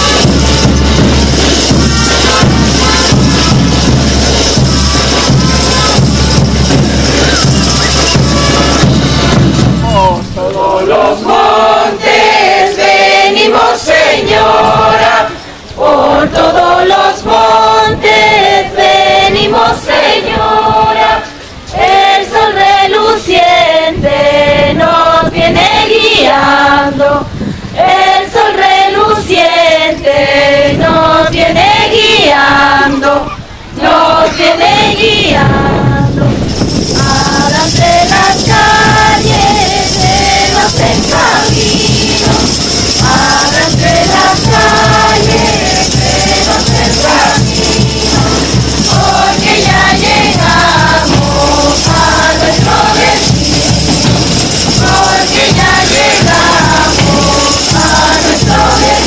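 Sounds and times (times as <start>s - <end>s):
women singing together: 0.0s - 9.4s, 10.2s - 59.0s
tambourines jingling: 0.0s - 11.3s, 36.3s - 59.0s.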